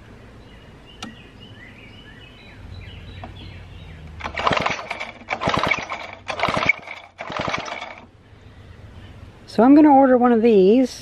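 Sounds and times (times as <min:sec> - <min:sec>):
chainsaw pull starter rattling: 0:04.2 - 0:08.1.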